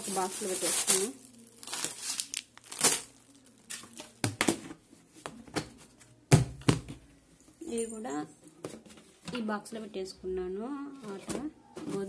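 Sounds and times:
plastic packets crinkling: 0.0s - 4.3s.

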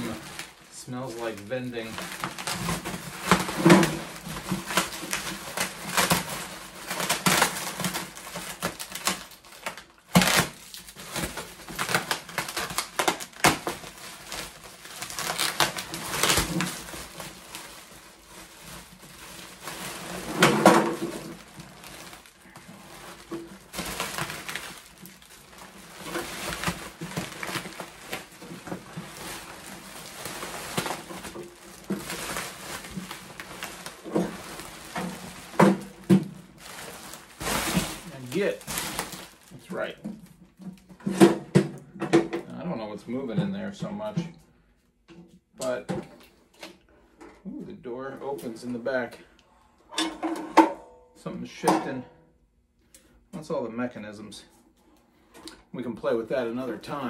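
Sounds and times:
plastic wrapping crinkling: 0.0s - 41.3s.

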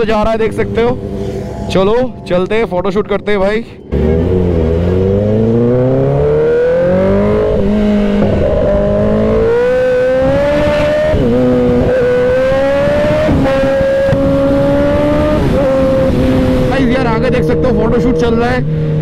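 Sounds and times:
motorcycle engine accelerating: 0.0s - 19.0s
wind noise: 4.0s - 19.0s.

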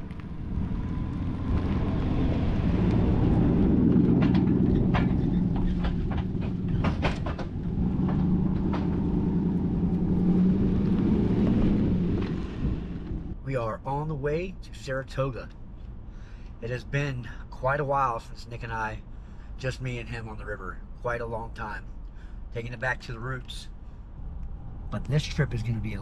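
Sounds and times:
truck engine and tyres rumble: 0.0s - 26.0s
sharp clicks and knocks: 3.9s - 9.2s.

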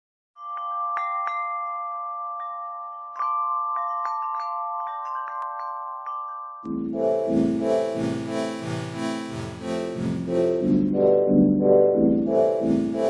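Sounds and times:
bell-like chime notes: 0.4s - 11.2s
held chord: 6.7s - 13.0s.

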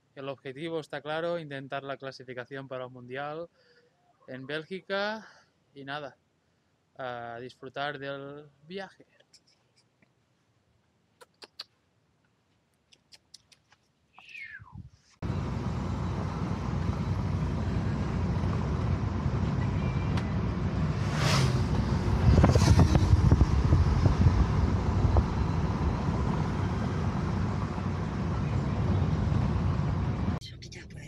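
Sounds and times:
motorcycle passing: 15.2s - 30.4s
road and engine noise: 15.2s - 31.0s.

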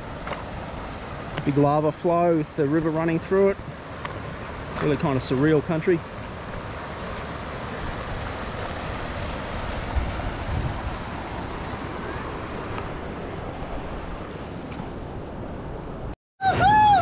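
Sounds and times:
water rushing over rapids: 0.0s - 15.8s
wind buffeting microphone: 6.3s - 16.1s.

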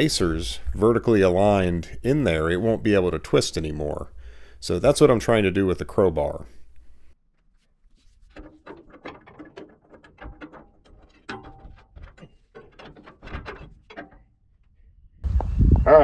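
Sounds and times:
crowbar scraping and clanking on metal: 7.9s - 14.4s.

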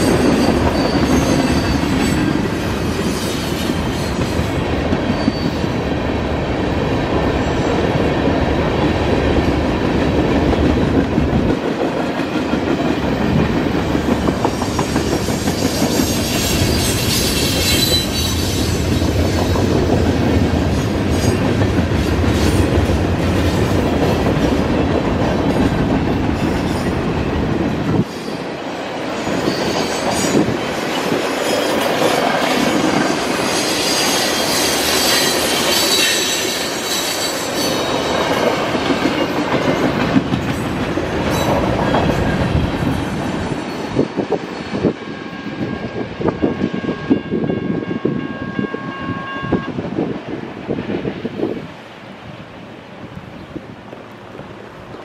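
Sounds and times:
train wheels rumbling over rails: 0.0s - 48.2s, 49.8s - 55.0s
wheels squealing: 14.5s - 19.6s.

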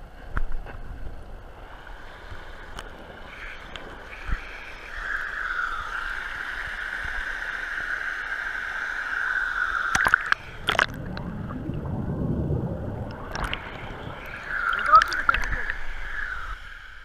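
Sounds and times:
muffled underwater bubbles rumble: 9.9s - 16.6s.

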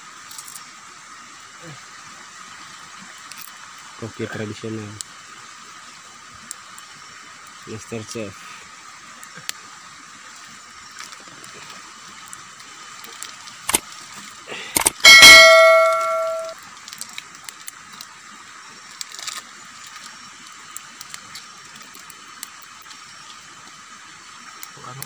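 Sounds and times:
metal pot clanging: 15.1s - 16.6s.

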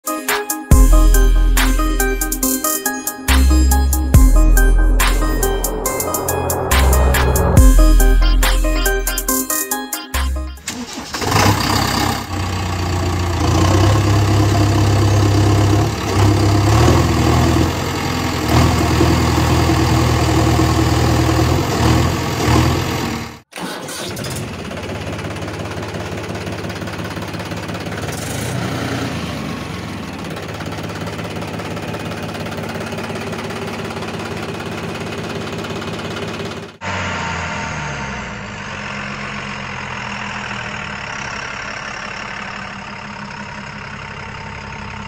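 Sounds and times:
engine revving: 3.4s - 9.2s, 10.6s - 32.2s, 32.8s - 42.7s
engine idling: 10.2s - 37.3s, 38.1s - 45.0s.

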